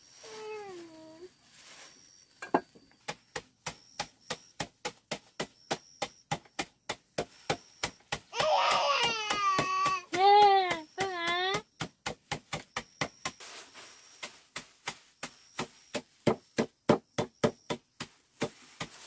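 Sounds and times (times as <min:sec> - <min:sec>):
knife pounding bag on board: 0:03.1 - 0:13.4, 0:14.6 - 0:19.0
baby's loud voice: 0:08.4 - 0:10.2.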